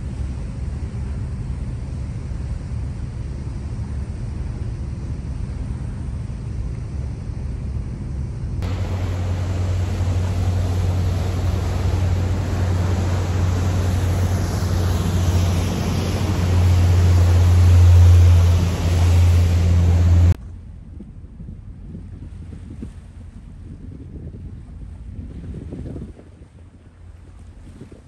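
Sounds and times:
ferry engine drone: 0.0s - 22.0s
rushing water: 8.6s - 20.4s
wind buffeting microphone: 8.6s - 28.0s.

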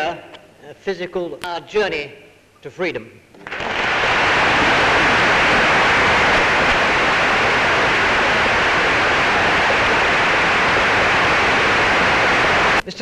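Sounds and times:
audience clapping: 3.5s - 12.8s.

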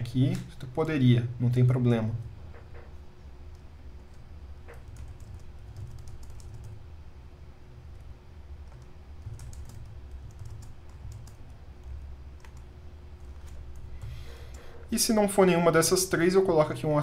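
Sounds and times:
faint steady low hum: 0.0s - 17.0s
keyboard keys clicking: 3.5s - 6.8s, 8.0s - 14.6s.

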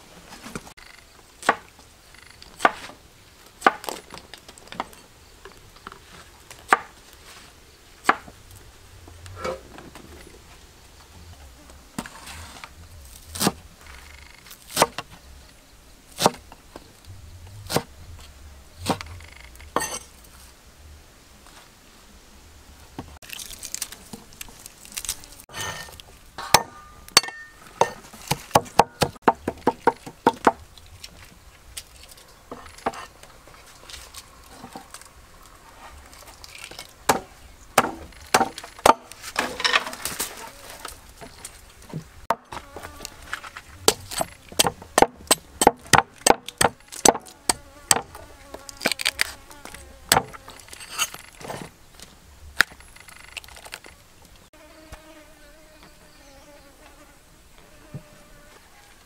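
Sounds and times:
cleaver chopping: 1.4s - 1.7s, 2.6s - 3.0s, 3.6s - 4.1s, 6.7s - 7.0s, 8.0s - 8.4s, 13.3s - 13.6s, 14.7s - 15.1s, 16.2s - 16.6s, 17.7s - 17.9s, 18.8s - 20.0s, 25.6s - 30.6s, 37.1s - 40.1s, 43.8s - 48.2s, 50.1s - 50.5s
cleaver hacking into coconut: 16.2s - 16.4s, 43.9s - 48.1s.

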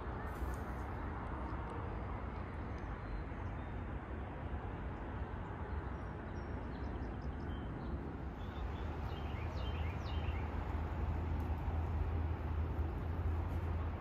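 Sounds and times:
bird chirping: 8.4s - 10.5s.

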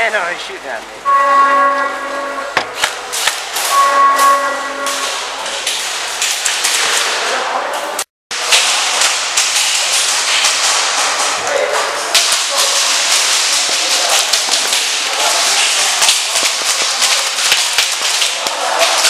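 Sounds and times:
steady horn-like tone: 1.0s - 2.8s, 3.6s - 5.5s.

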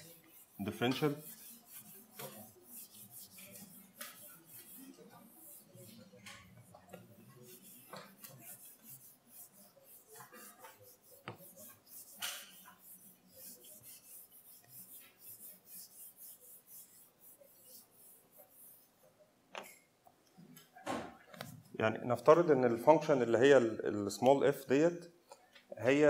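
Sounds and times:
marker squeaking on whiteboard: 0.1s - 18.9s.

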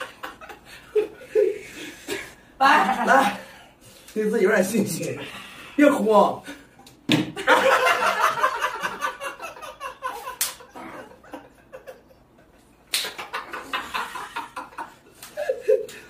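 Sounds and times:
men laughing: 0.0s - 3.6s, 7.4s - 16.0s.

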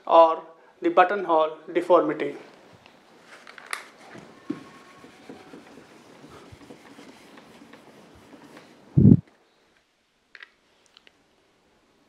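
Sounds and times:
eraser rubbing on whiteboard: 4.0s - 8.9s.

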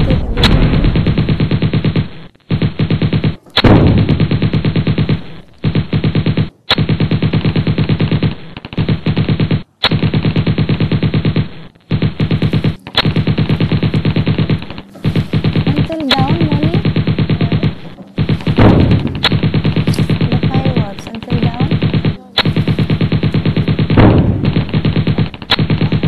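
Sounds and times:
fireworks rattling bangs: 10.7s - 26.0s.

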